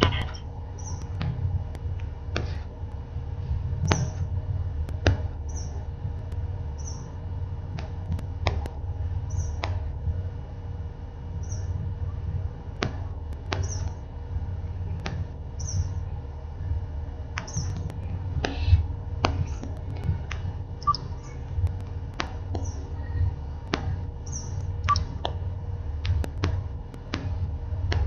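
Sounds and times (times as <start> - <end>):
low rumbling noise: 0.0 - 28.0
sharp clicks: 23.6 - 25.4.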